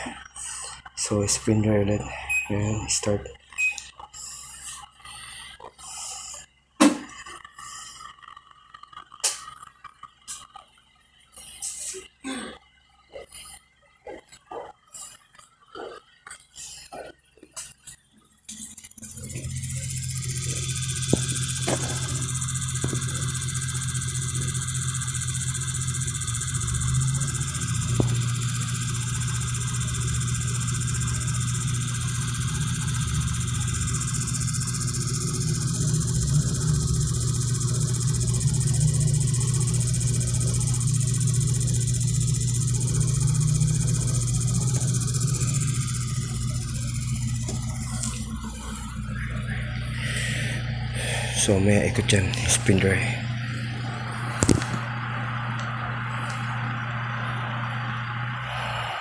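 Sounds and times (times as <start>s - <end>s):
washing machine spin hum: 0.0s - 59.0s
washing machine hissing: 18.5s - 59.0s.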